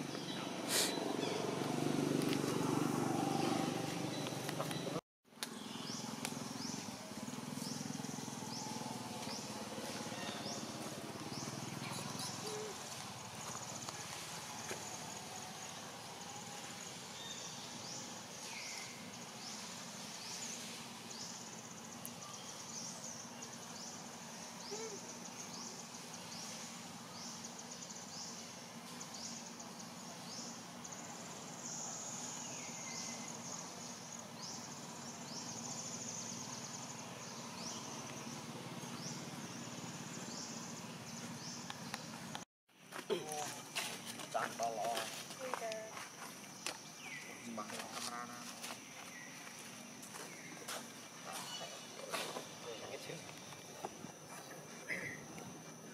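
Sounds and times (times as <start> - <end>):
insects shrilling in chorus: 0.0 - 1.6, 43.0 - 55.9.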